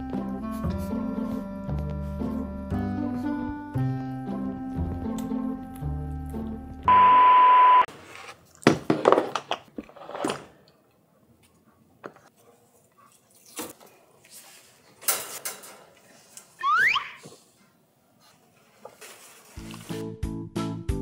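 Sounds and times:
background music: 0:00.0 - 0:06.9, 0:19.6 - 0:21.0
loud electronic beep: 0:06.9 - 0:07.9
metallic clatter of wire crate: 0:15.0 - 0:15.9.

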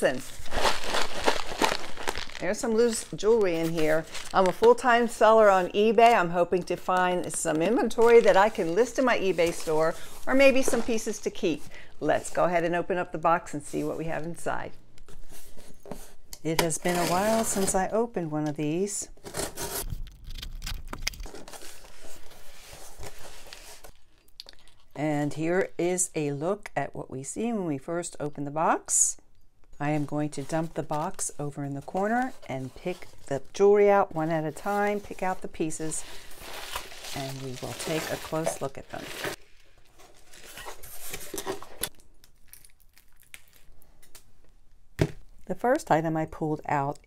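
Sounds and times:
cardboard rustling and scraping: 0:00.0 - 0:11.6, 0:16.8 - 0:17.9, 0:21.2 - 0:24.0, 0:34.2 - 0:41.9.

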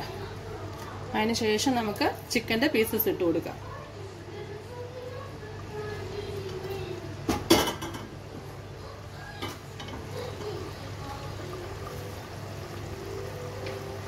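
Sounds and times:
gravy bubbling in a pot: 0:03.9 - 0:14.0.

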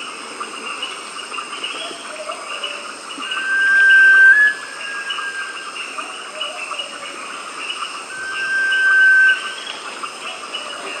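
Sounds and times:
bird long thin whistle: 0:03.2 - 0:05.6, 0:08.1 - 0:09.8
insects shrilling: 0:03.2 - 0:05.9, 0:08.1 - 0:09.8.

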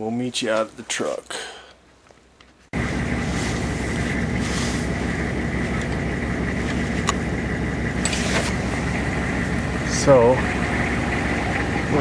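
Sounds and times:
thin steady whine: 0:02.4 - 0:12.0
truck engine idling: 0:02.7 - 0:12.0.

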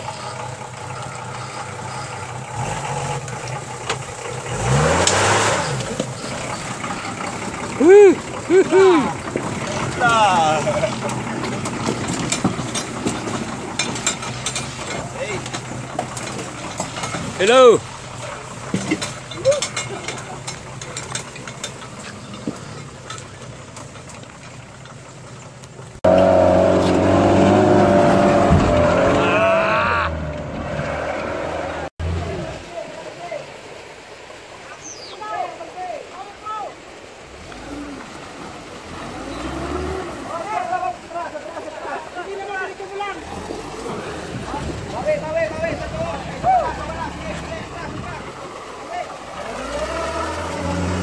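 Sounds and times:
engine revving under load: 0:00.0 - 0:13.6, 0:26.0 - 0:32.6, 0:37.3 - 0:40.5, 0:49.2 - 0:51.0
tyres churning loose dirt: 0:00.0 - 0:51.0.

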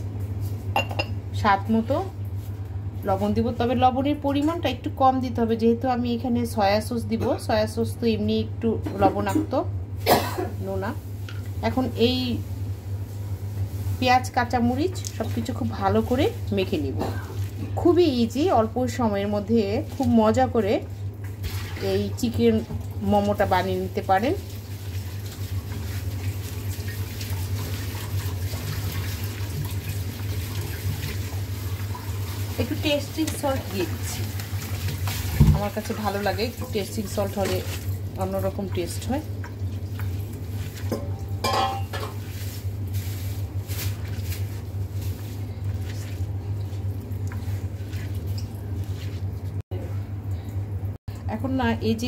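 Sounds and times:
steady low hum: 0:00.0 - 0:52.0
wet squishing of food mixing: 0:10.9 - 0:41.4, 0:42.0 - 0:50.0.

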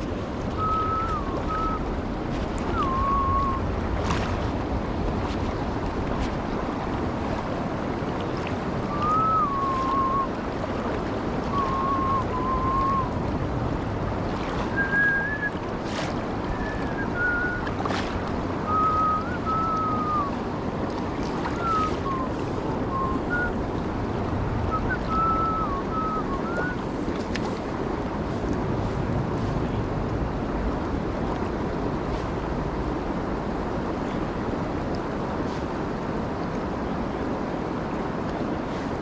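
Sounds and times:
river rushing over riffle: 0:00.0 - 0:39.0
thin whistle-like tones: 0:00.6 - 0:01.8, 0:02.7 - 0:03.6, 0:08.9 - 0:10.3, 0:11.5 - 0:13.1, 0:14.7 - 0:15.6, 0:16.5 - 0:17.7, 0:18.6 - 0:20.4, 0:21.6 - 0:23.6, 0:24.7 - 0:26.8.

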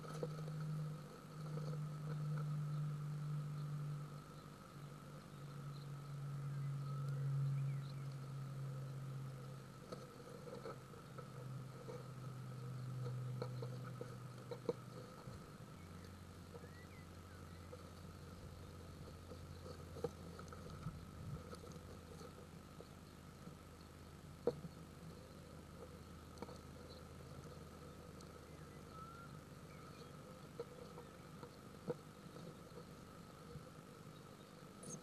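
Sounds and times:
nestlings scratching and clicking: 0:00.0 - 0:05.8, 0:06.8 - 0:35.0
low electrical hum: 0:00.0 - 0:35.0
thin high whine: 0:32.2 - 0:35.0.

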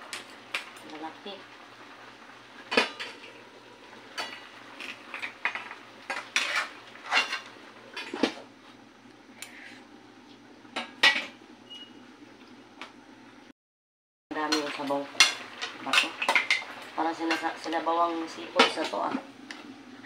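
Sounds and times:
metal spoon scraping a wok: 0:06.1 - 0:07.5.

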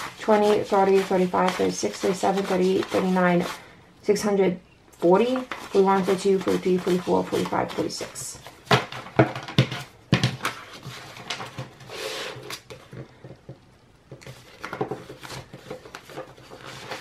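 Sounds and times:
paper and plastic crinkling: 0:14.2 - 0:17.0.

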